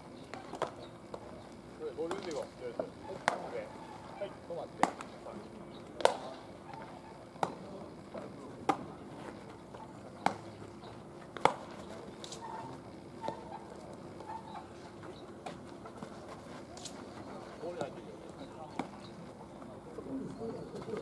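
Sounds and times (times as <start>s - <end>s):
bat striking baseballs: 0.3s - 1.3s, 2.1s - 3.6s, 4.7s - 5.2s, 5.9s - 6.4s, 7.4s - 7.7s, 8.6s - 9.0s, 10.1s - 10.6s, 11.2s - 12.4s, 13.2s - 13.5s, 18.7s - 19.1s
faint voices: 0.3s - 21.0s.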